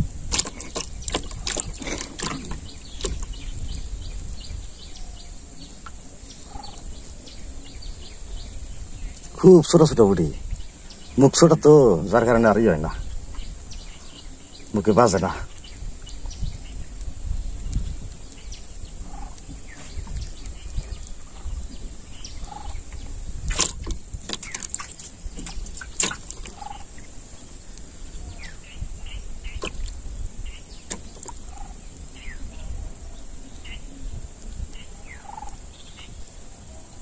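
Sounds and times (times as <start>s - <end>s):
wind rumbling on microphone: 0.0s - 37.0s
short bird calls: 22.2s - 27.1s.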